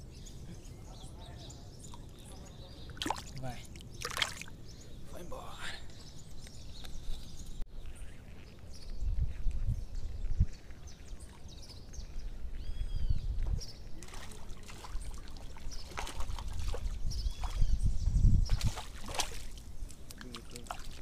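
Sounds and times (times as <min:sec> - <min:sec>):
water sloshing and trickling: 0:01.8 - 0:04.7, 0:13.9 - 0:17.8, 0:18.4 - 0:21.0
water splashes: 0:02.8 - 0:04.6, 0:14.0 - 0:17.7, 0:18.5 - 0:21.0
wind rumbling on microphone: 0:06.1 - 0:14.1, 0:15.0 - 0:20.1.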